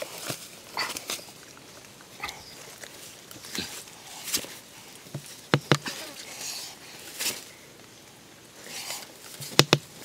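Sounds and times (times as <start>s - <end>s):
dry twigs and leaves rustling: 0.0s - 10.0s
wooden sticks knocking: 5.1s - 5.9s, 9.4s - 9.9s.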